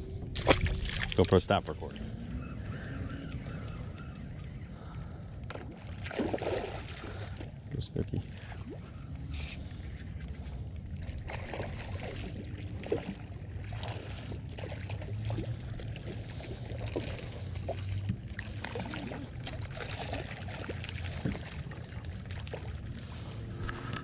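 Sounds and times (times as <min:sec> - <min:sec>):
low rumble: 0:00.0 - 0:05.9, 0:21.9 - 0:24.0
fish thrashing in water: 0:00.3 - 0:01.3, 0:05.5 - 0:07.4, 0:11.0 - 0:24.0.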